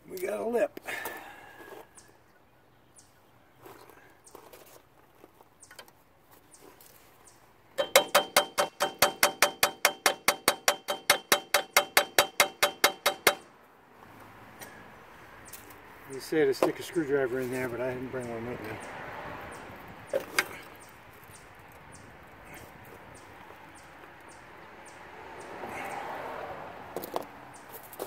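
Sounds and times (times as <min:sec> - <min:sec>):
hammer striking steel punch: 0:07.8 - 0:13.5.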